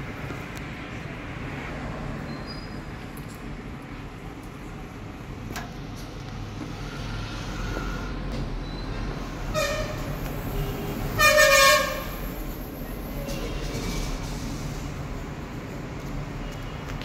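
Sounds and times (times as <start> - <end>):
low rumble of traffic: 0.0 - 17.0
vehicle horn honking: 9.5 - 12.2.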